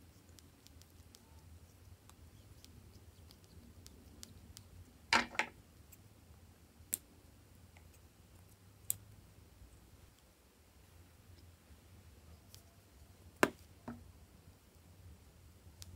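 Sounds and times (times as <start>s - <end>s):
faint handling ticks: 0.0s - 5.0s.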